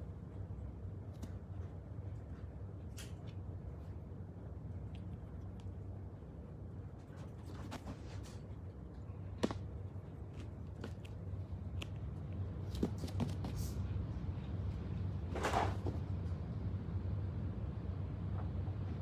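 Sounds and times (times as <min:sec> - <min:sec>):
steady low hum: 0:00.0 - 0:19.0
rabbit scuffling: 0:00.1 - 0:16.5.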